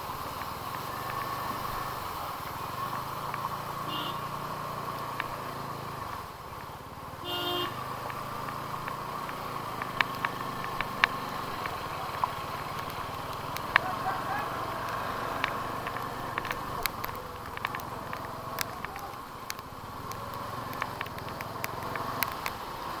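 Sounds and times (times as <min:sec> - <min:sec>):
vehicle horn honking: 0:03.9 - 0:04.4, 0:07.2 - 0:07.8
sharp ticks: 0:04.9 - 0:05.4, 0:08.0 - 0:23.0
motorcycle engine running: 0:07.3 - 0:23.0.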